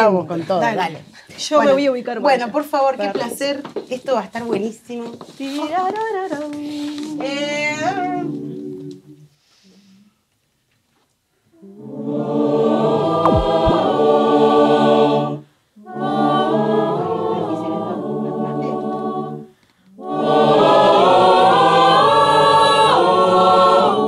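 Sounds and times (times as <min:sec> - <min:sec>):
mixed choir singing a cappella: 0:06.2 - 0:09.3, 0:11.6 - 0:24.0
choir breaths: 0:06.6 - 0:10.2, 0:11.4 - 0:24.0.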